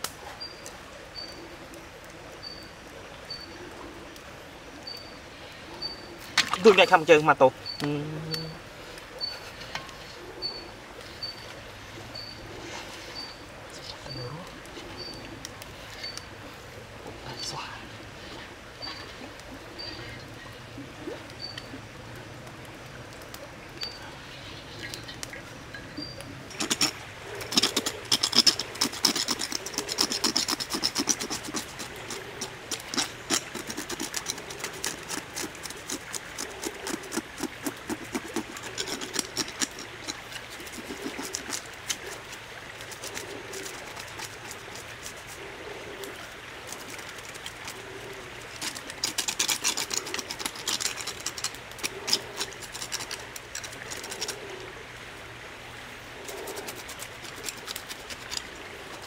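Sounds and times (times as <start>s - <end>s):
knife scraping scales: 26.5s - 45.4s, 48.4s - 54.4s, 56.3s - 59.0s.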